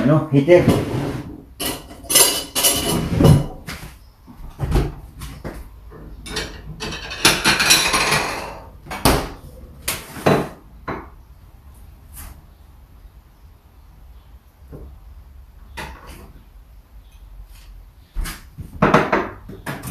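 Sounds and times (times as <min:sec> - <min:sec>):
dishes and cutlery clattering: 0:01.6 - 0:03.6, 0:06.0 - 0:09.4.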